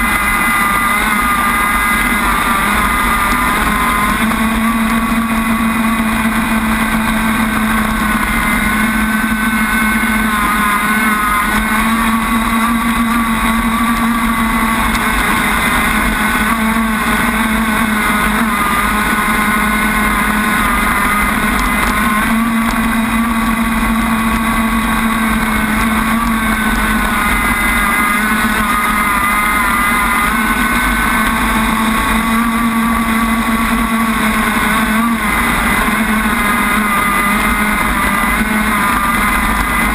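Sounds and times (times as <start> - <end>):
toy boat engine high-revving: 0.0 - 39.9.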